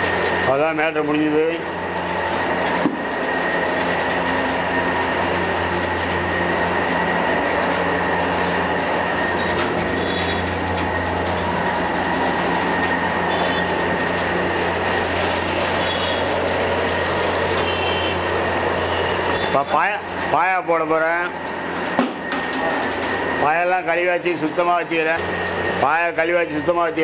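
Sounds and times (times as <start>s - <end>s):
pot boiling and bubbling: 0.0s - 27.0s.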